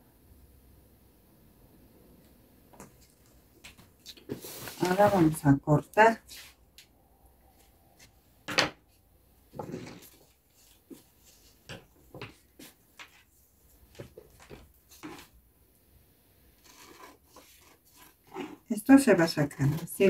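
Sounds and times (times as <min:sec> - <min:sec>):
paper rustling: 0:03.0 - 0:05.5.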